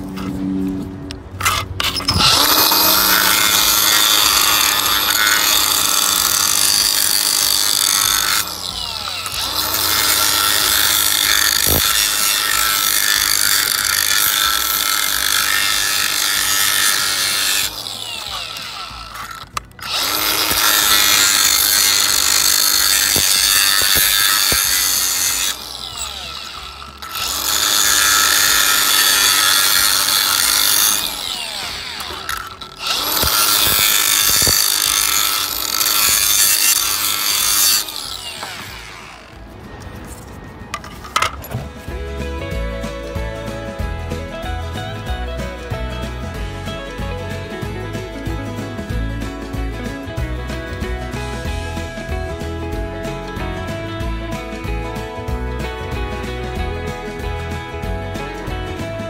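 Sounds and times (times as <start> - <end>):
angle grinder grinding plastic: 1.1 - 39.9.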